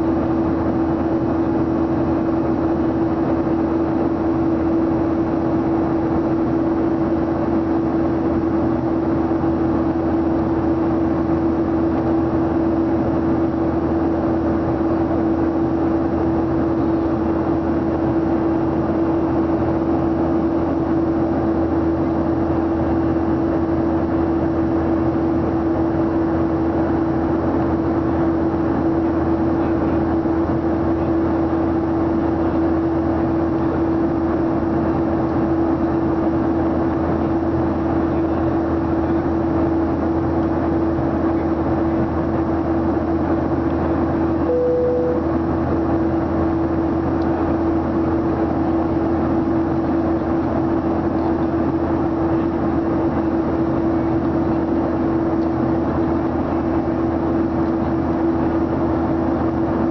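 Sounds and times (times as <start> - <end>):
jet engine cabin roar: 0.0 - 59.9
steady hum: 0.0 - 59.9.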